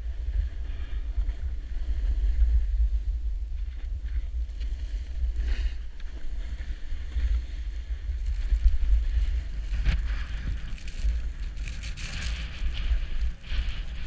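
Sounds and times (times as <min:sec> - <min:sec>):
wind buffeting microphone: 0:00.0 - 0:14.0
edges scraping on snow: 0:04.6 - 0:14.0.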